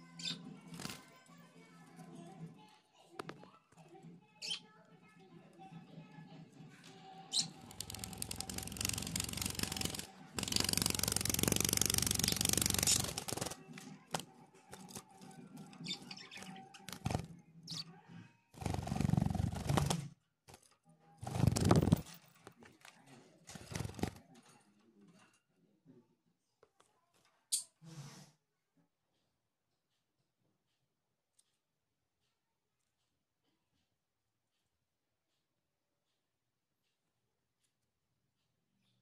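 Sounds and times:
budgerigar wings flapping: 7.6s - 14.2s, 18.6s - 20.1s, 21.2s - 22.0s, 23.6s - 24.2s.

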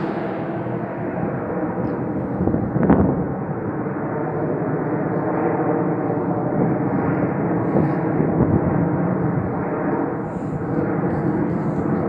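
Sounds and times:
jet engines passing overhead: 0.0s - 12.0s.

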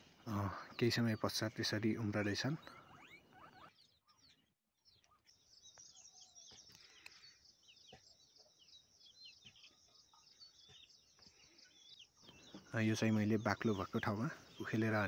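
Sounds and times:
high bird trill: 0.0s - 7.3s
birds chirping: 0.0s - 15.0s.

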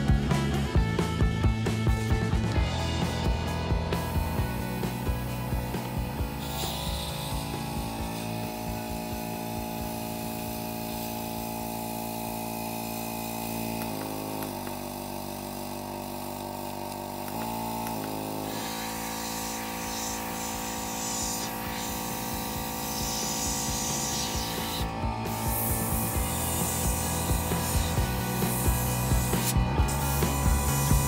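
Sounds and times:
compressor motor hum: 0.0s - 31.0s
airbrush spraying hiss: 2.8s - 31.0s.

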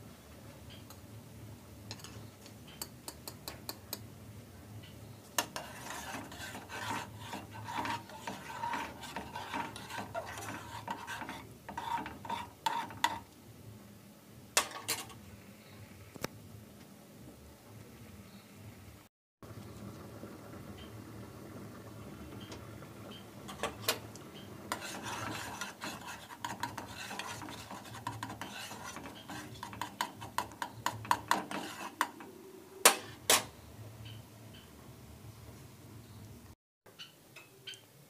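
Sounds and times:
spoon tapping on pan: 1.9s - 4.1s
spoon stirring in metal saucepan: 5.4s - 13.3s, 23.5s - 32.4s.

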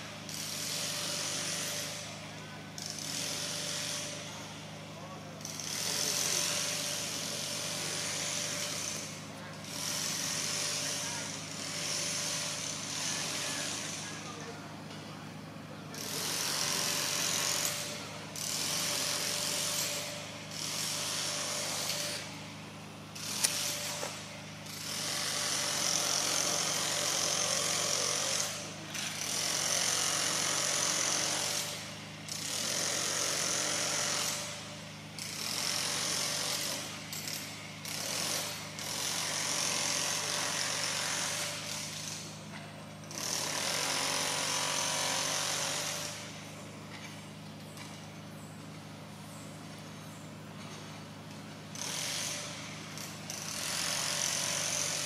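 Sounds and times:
sharp click: 23.4s - 23.6s.

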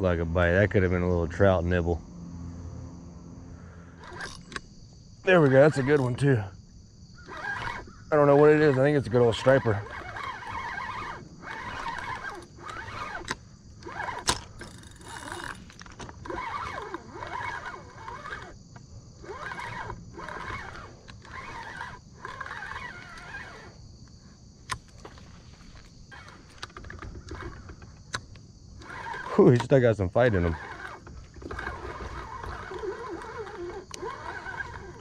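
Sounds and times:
fishing reel cranking: 3.9s - 4.6s, 5.3s - 6.4s, 7.2s - 18.6s, 19.2s - 23.8s, 26.1s - 28.2s, 28.8s - 35.0s
sharp clicks: 9.6s - 29.8s.

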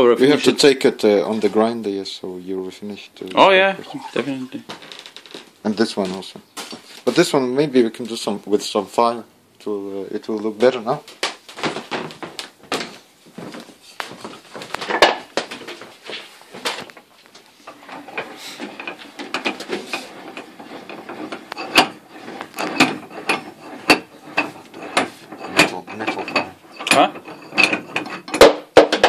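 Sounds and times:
hand tools handled on workbench: 11.1s - 28.5s.

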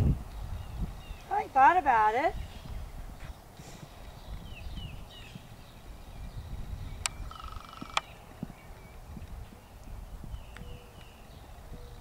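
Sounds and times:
sharp clicks: 7.0s - 8.1s.

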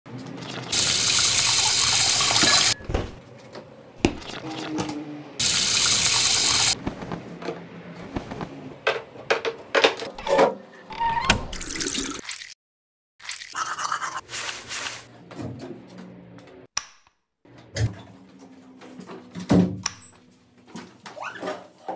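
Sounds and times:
tap water running into steel sink: 0.5s - 2.8s, 5.4s - 6.8s
hands washing under water: 4.0s - 4.7s, 13.2s - 15.0s.

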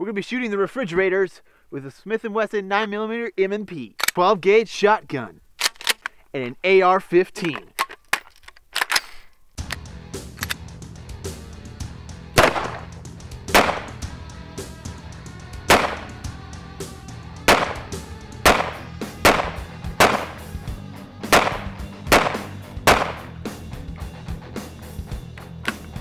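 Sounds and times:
background music: 9.6s - 26.0s
gunshots with echo: 12.4s - 14.0s, 15.7s - 16.3s, 17.5s - 20.6s, 21.3s - 23.4s.

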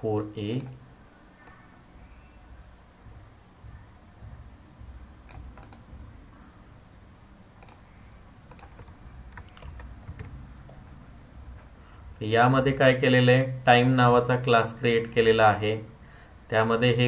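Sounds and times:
faint low hum: 0.0s - 17.0s
mouse and keyboard clicks: 5.3s - 5.8s, 7.6s - 7.8s, 8.5s - 10.3s.

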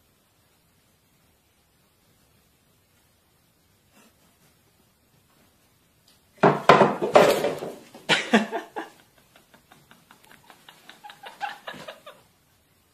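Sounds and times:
household objects clattering: 6.4s - 8.1s.

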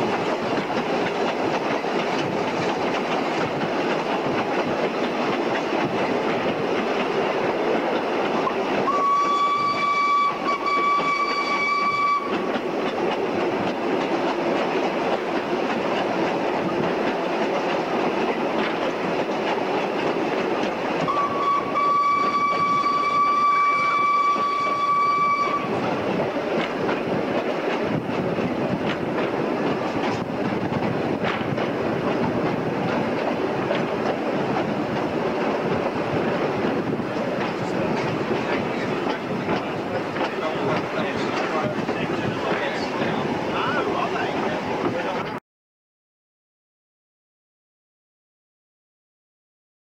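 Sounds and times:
train rumble and wheel clatter: 0.0s - 45.4s
steam locomotive whistle: 8.8s - 12.5s, 21.0s - 25.8s.

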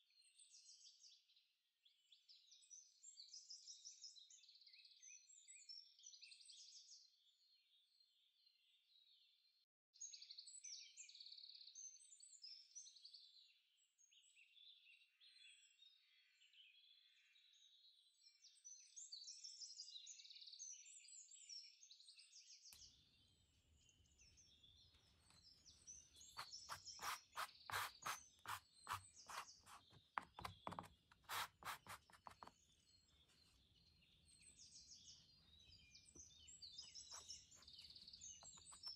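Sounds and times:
birds chirping: 24.4s - 38.9s
sponge tapping on canvas: 26.4s - 32.5s.

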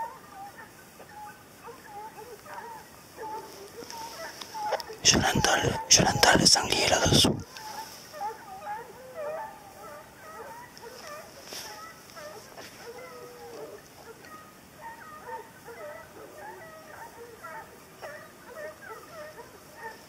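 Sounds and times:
faint hounds yelping and baying: 0.0s - 20.0s.

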